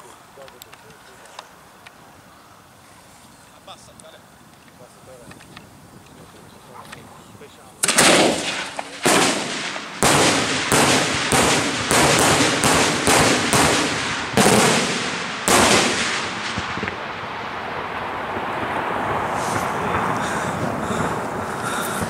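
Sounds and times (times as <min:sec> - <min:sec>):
firework shells bursting: 0:07.8 - 0:18.7.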